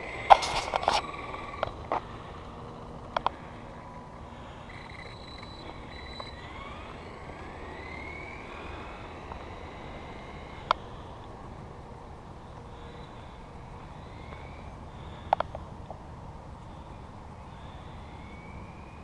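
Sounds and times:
electric motor whining: 0.0s - 11.7s
low steady rumble: 0.0s - 19.0s.

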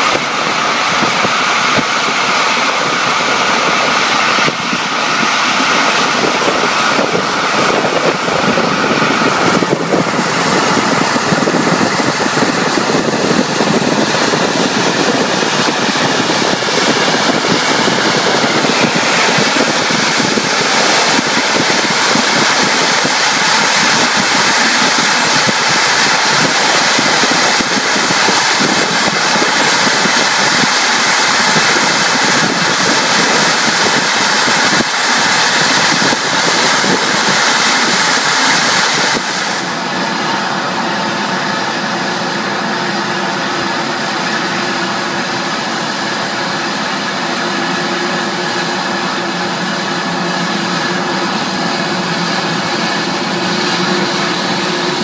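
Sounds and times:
jet engine rush in airliner cabin: 0.0s - 55.0s.

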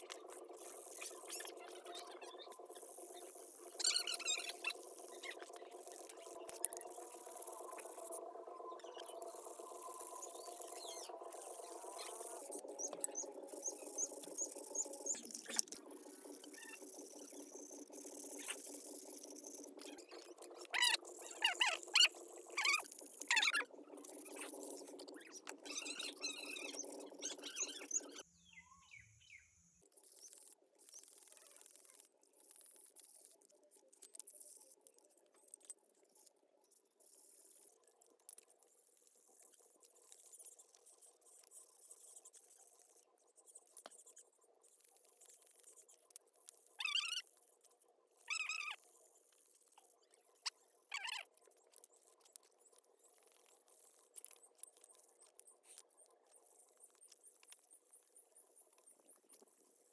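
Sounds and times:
steady hum: 0.0s - 28.2s.

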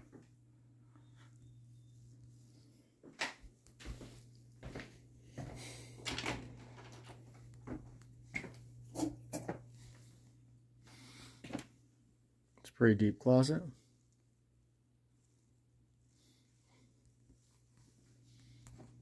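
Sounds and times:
steady low hum: 0.0s - 19.0s
footsteps: 3.0s - 6.0s.

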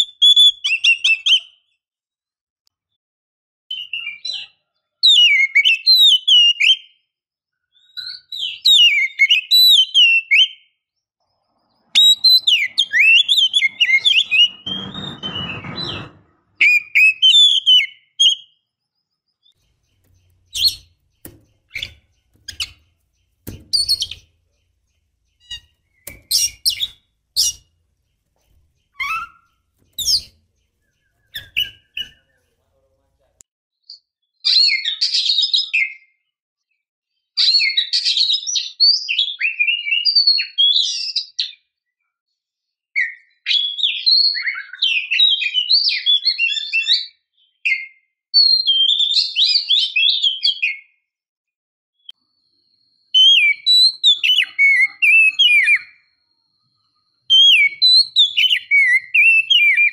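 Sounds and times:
bird singing whistles: 11.9s - 15.4s, 28.9s - 30.3s, 31.0s - 32.3s, 47.7s - 51.0s, 53.1s - 56.2s, 57.2s - 59.9s.

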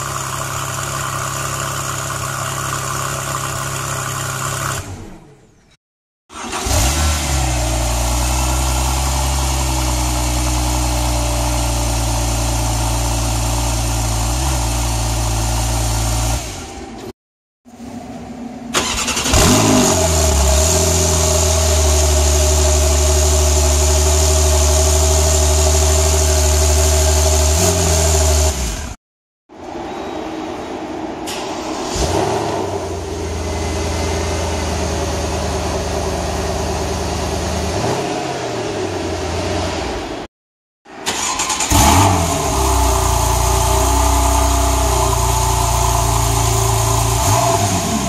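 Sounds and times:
car engine starting: 0.0s - 5.6s, 6.3s - 17.1s, 17.7s - 29.0s, 30.9s - 40.3s, 40.9s - 48.0s
car engine fast idle: 18.7s - 20.4s.

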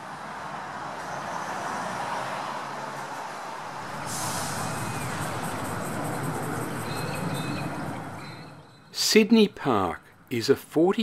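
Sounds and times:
street traffic engines: 0.0s - 11.0s
steady hiss: 3.8s - 7.5s.

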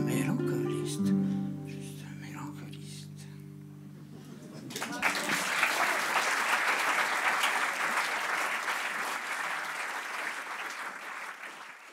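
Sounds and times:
audience applauding: 4.6s - 11.9s.

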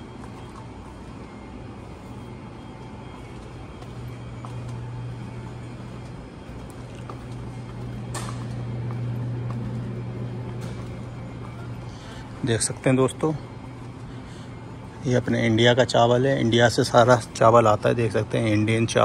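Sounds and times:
low mechanical hum: 0.0s - 19.0s.

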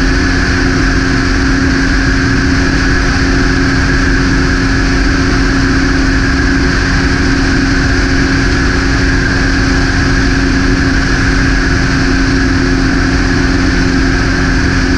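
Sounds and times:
propeller aircraft engine droning: 0.0s - 14.9s.

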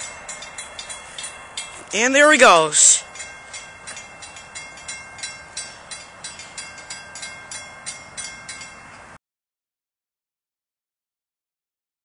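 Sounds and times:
railroad crossing bell ringing: 0.0s - 9.2s.

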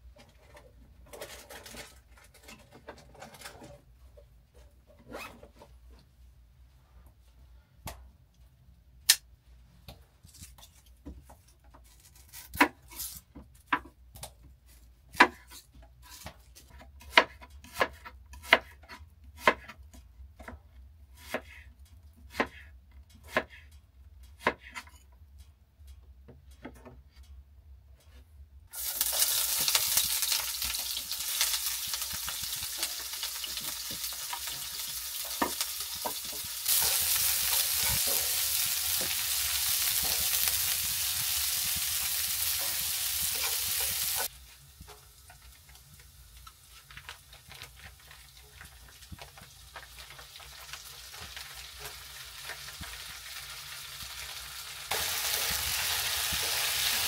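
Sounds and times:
onion sizzling in a pan: 28.7s - 57.0s.

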